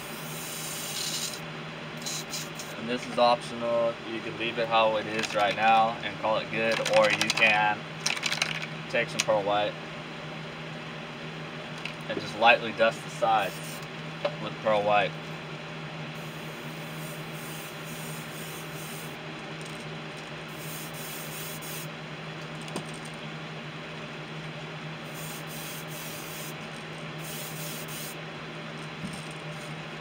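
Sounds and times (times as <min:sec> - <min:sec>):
airbrush spraying: 0:00.0 - 0:01.4, 0:02.0 - 0:02.8, 0:13.4 - 0:13.8, 0:16.2 - 0:19.2, 0:20.5 - 0:21.9, 0:25.1 - 0:26.6, 0:27.2 - 0:28.2
steady hum: 0:00.0 - 0:30.0.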